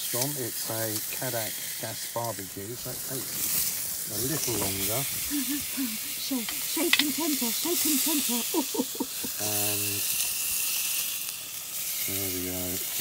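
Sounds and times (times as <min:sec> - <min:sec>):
steaks sizzling on a grill: 0:00.0 - 0:13.0
voice murmuring and humming: 0:04.2 - 0:10.0.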